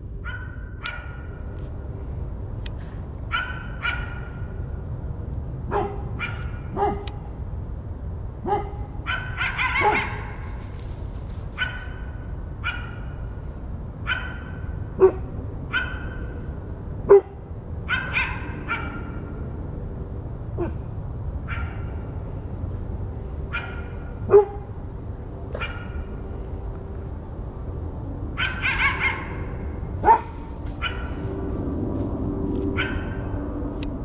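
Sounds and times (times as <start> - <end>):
dog barking: 0.2 - 1.3, 3.3 - 4.4, 5.7 - 7.1, 8.4 - 10.5, 12.6 - 13.0, 14.1 - 16.1, 17.1 - 19.2, 23.5 - 24.7, 25.5 - 26.0, 28.4 - 29.3, 30.0 - 31.2, 32.8 - 33.2
coyote barking: 0.2 - 1.5, 3.3 - 4.5, 8.5 - 10.4, 14.0 - 16.3, 17.1 - 19.3, 23.5 - 24.7, 25.5 - 26.1, 28.4 - 31.2, 32.8 - 33.3.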